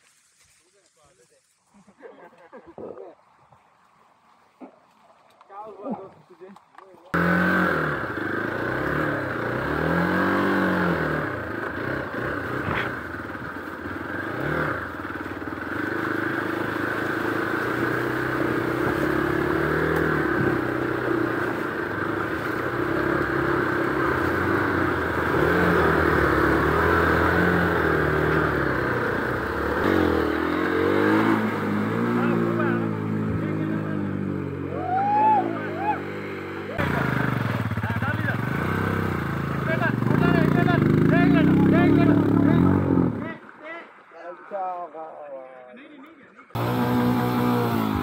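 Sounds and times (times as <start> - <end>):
motorcycle engine revving: 7.1 - 43.4, 46.6 - 48.0.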